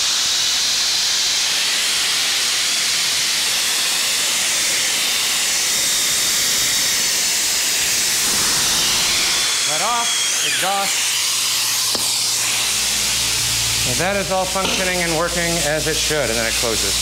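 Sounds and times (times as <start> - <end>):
compressed air hissing: 1.2 - 17.0.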